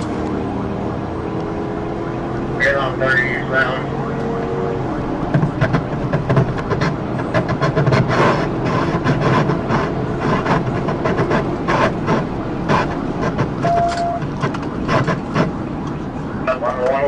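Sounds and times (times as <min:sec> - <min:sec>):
car engine tyres and wind drone: 0:00.0 - 0:17.0
knocks and thumps: 0:05.2 - 0:15.6.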